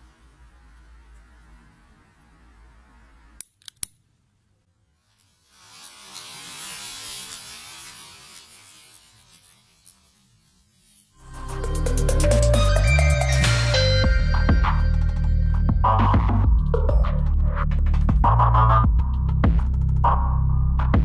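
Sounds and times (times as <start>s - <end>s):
firework fountain hissing: 5.3s - 11.5s.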